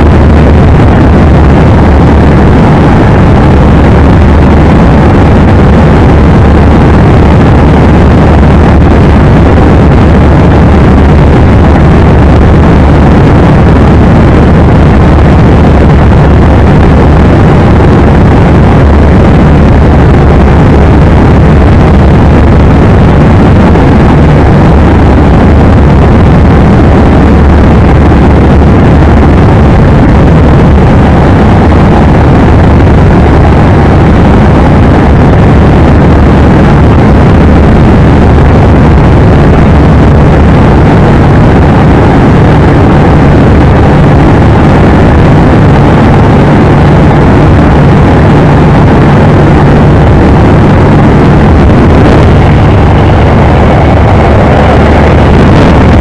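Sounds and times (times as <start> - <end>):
wind rushing: 0.0 - 34.2, 46.3 - 56.0
plane engine and propeller drone: 0.0 - 56.0.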